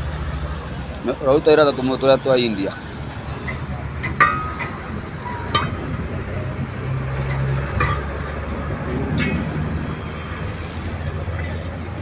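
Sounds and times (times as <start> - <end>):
steel rings clinking on rim: 3.4 - 6.0, 7.0 - 8.4.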